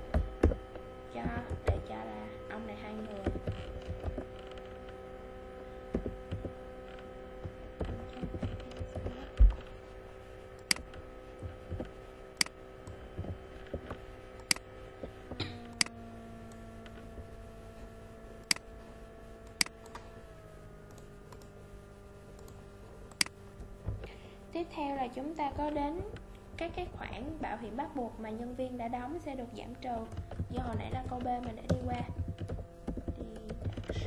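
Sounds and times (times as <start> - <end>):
steady hum: 0.0 - 34.0
keyboard and mouse clicks: 5.9 - 6.6, 7.4 - 9.7, 30.0 - 34.0.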